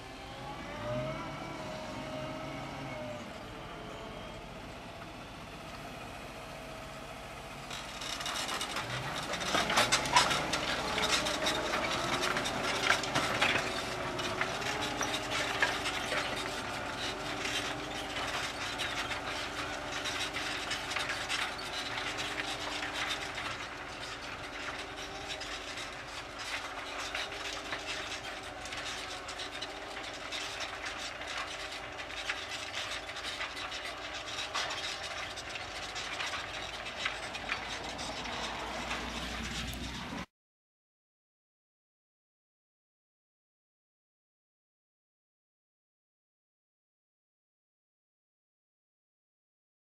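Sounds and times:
tractor diesel engine: 0:00.0 - 0:40.3
plough rattling in stony soil: 0:04.6 - 0:40.3.

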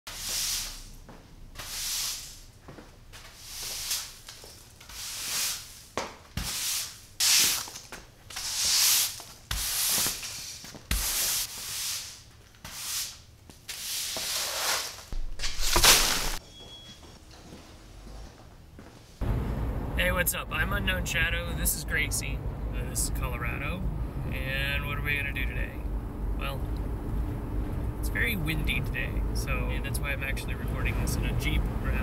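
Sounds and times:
broom sweeping into dustpan: 0:00.1 - 0:01.0, 0:01.6 - 0:02.5, 0:03.2 - 0:16.4
broom sweeping concrete floor: 0:00.1 - 0:16.4.

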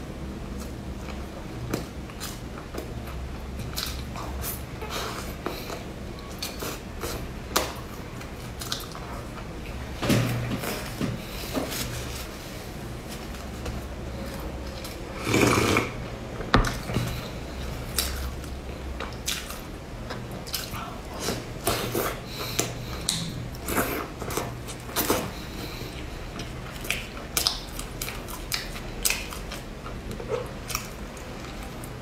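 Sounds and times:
low steady hum: 0:00.0 - 0:32.0
chewing with wet mouth clicks: 0:00.6 - 0:09.1, 0:17.8 - 0:32.0
loud slurped sip: 0:15.2 - 0:16.0.

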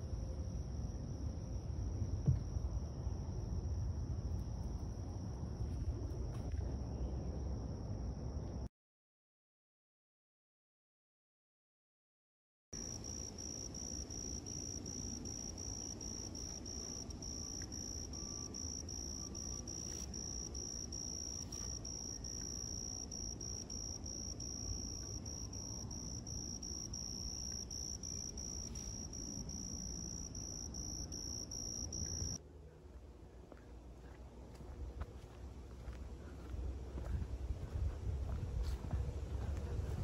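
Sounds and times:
cricket chirping: 0:00.0 - 0:08.7, 0:12.8 - 0:32.4.

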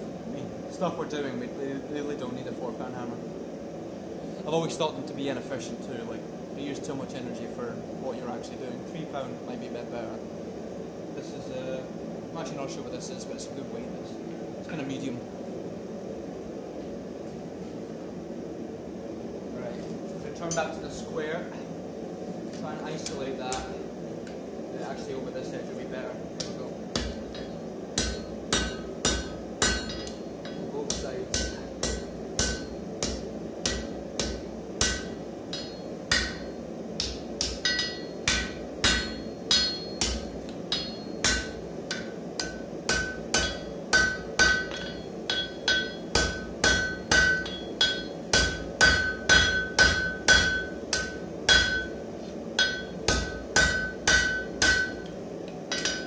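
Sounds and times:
steady low hum: 0:00.0 - 0:56.0
hammer striking steel on anvil: 0:26.4 - 0:52.0, 0:52.6 - 0:56.0.

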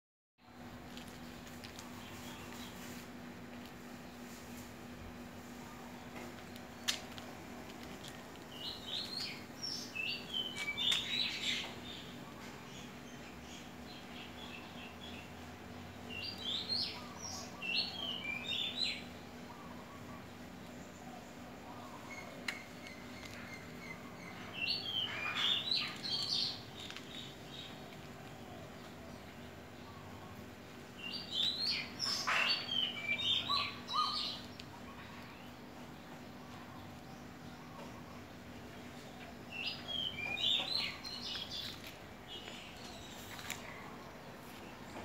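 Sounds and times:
faint steady hum: 0:00.4 - 0:45.0
bird chirping: 0:08.4 - 0:45.0
small bird chirping: 0:28.6 - 0:35.5.

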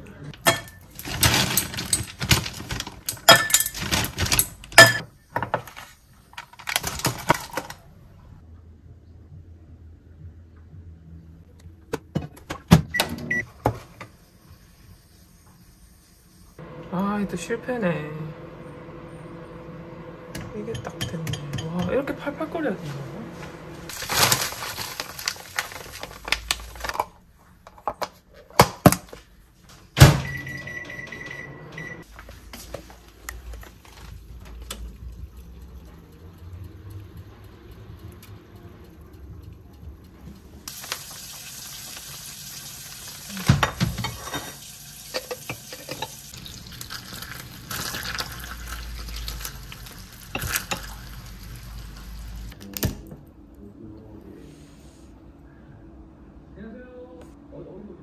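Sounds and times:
utensils knocking and clinking: 0:00.4 - 0:05.6.

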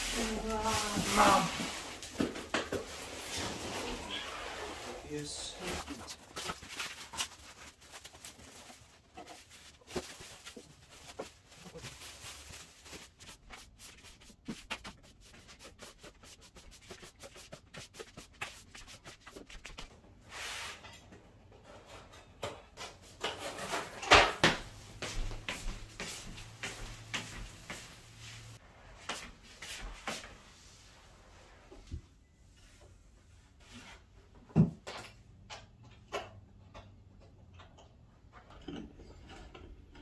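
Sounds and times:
objects rubbing and scraping: 0:00.0 - 0:22.1.

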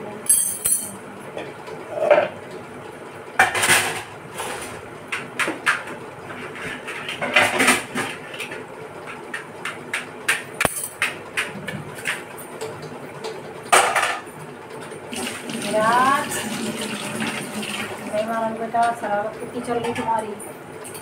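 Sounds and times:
kitchenware clinking and clattering: 0:00.3 - 0:01.0, 0:06.5 - 0:08.6, 0:10.3 - 0:14.9.

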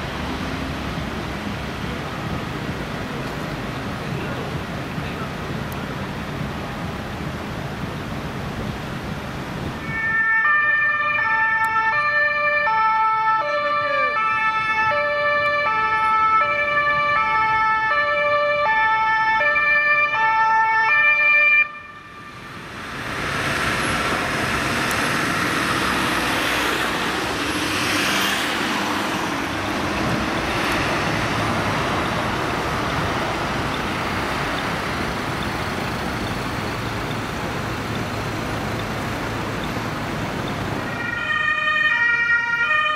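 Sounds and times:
road traffic rushing: 0:00.0 - 0:42.9
two-tone siren: 0:09.8 - 0:22.5, 0:40.9 - 0:42.9.

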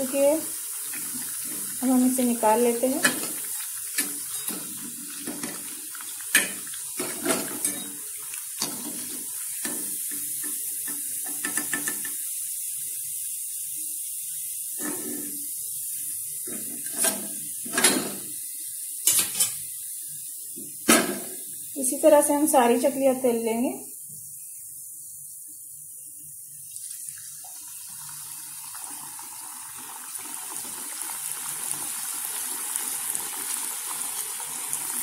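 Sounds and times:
frying oil sizzling: 0:00.0 - 0:35.0
metal spoon clinking on metal: 0:07.6 - 0:08.0.

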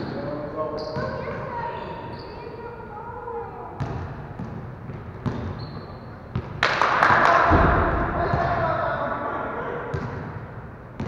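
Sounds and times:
basketball bouncing on gym floor: 0:03.8 - 0:06.7, 0:09.9 - 0:10.4
loud rushing noise: 0:07.0 - 0:09.4.

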